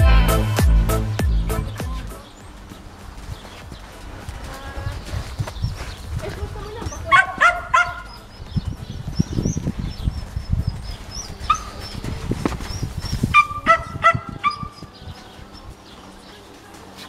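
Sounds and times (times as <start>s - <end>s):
horse hooves cantering on sand: 1.8s - 17.0s
dog yapping: 7.0s - 8.2s, 11.5s - 11.9s, 13.3s - 14.9s.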